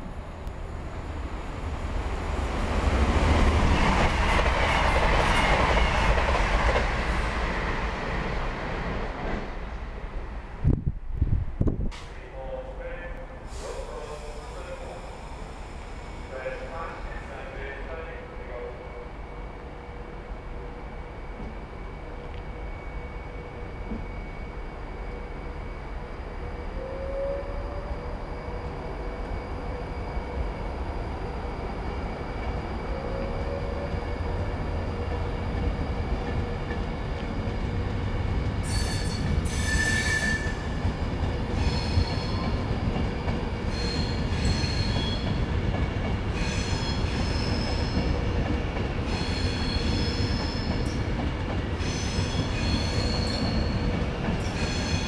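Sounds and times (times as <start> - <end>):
electric train rumbling: 0.0 - 55.0
high-pitched wheel squeals: 38.6 - 40.8, 41.5 - 42.5, 43.7 - 45.3, 46.4 - 48.1, 49.1 - 51.0, 51.8 - 55.0.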